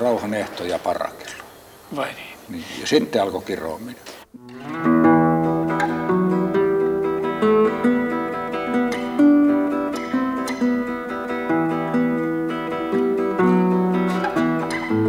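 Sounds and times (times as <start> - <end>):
acoustic guitar picking melody: 4.3 - 15.0.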